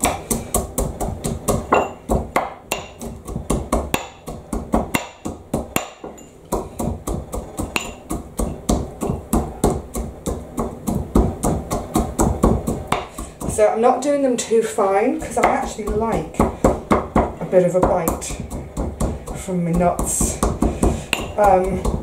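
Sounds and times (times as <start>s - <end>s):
pestle cracking nuts in ceramic mortar: 0.0s - 13.8s, 14.8s - 22.0s.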